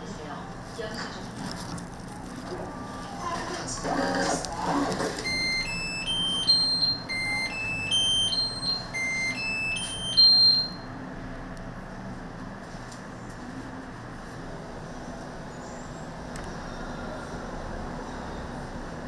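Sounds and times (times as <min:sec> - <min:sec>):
electronic beeper melody: 0:05.2 - 0:10.9.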